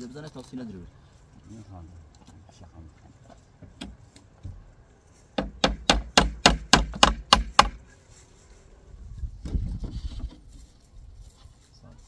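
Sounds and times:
hammer driving nails into wood: 5.4 - 7.8.

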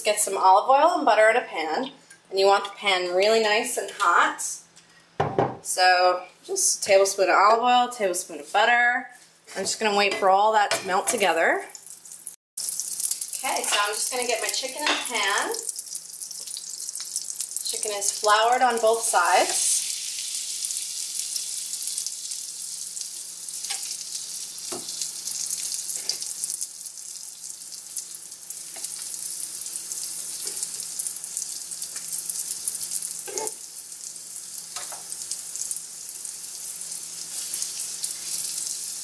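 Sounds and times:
chicken sizzling in frying pan: 12.2 - 39.0.

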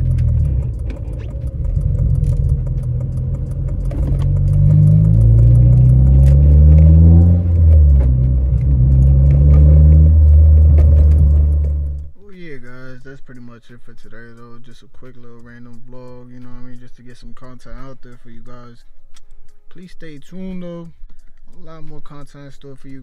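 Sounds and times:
car engine accelerating: 0.0 - 12.2.

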